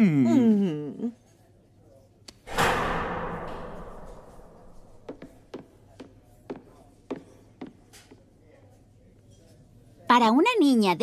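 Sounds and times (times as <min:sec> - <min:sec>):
loud crash: 0:02.5 - 0:05.0.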